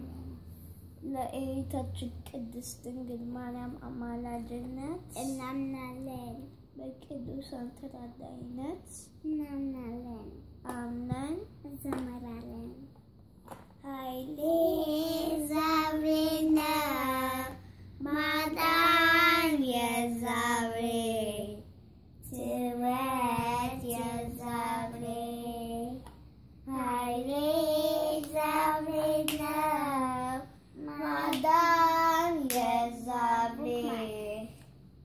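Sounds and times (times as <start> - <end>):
child singing a hymn: 14.0 - 21.6, 22.3 - 26.0, 26.7 - 34.5
hand claps: 29.0 - 29.6, 31.3 - 31.6, 32.4 - 32.8.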